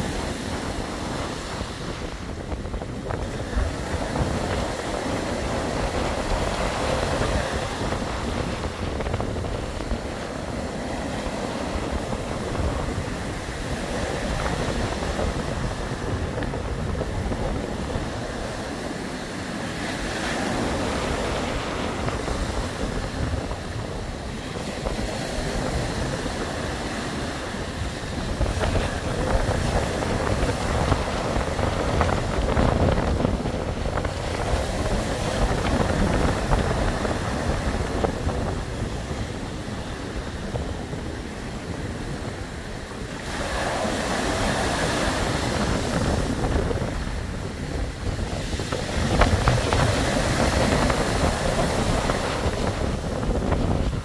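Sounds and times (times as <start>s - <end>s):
wind rumble on microphone: 0.0s - 54.0s
surf breaking on pebbles: 43.0s - 54.0s.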